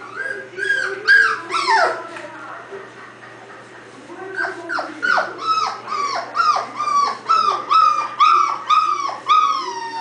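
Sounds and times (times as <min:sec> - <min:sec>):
puppy whimpering: 0:00.0 - 0:02.1, 0:04.2 - 0:10.0.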